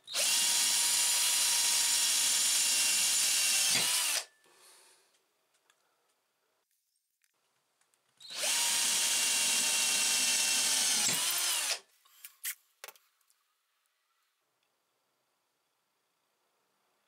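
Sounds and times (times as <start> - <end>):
electric drill whining: 0.0 - 4.3, 8.2 - 11.8.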